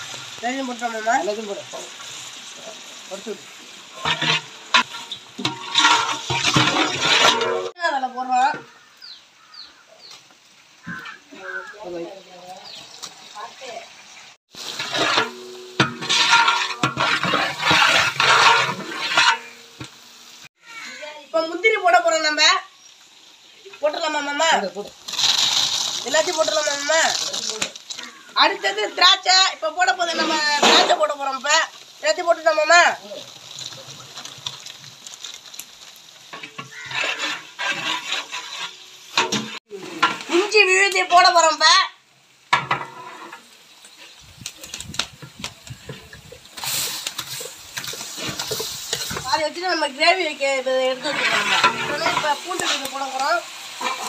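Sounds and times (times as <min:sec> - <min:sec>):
onions sizzling in oil: 0:00.0 - 0:54.0
ladle scraping and knocking pot: 0:04.0 - 0:07.7, 0:14.7 - 0:20.0, 0:36.3 - 0:40.3, 0:45.2 - 0:49.4, 0:51.0 - 0:52.9.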